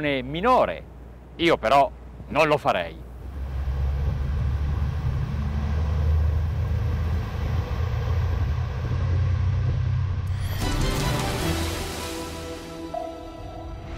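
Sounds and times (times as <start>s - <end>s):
boat engines rumbling: 0.0s - 10.3s
rising whoosh: 3.9s - 13.9s.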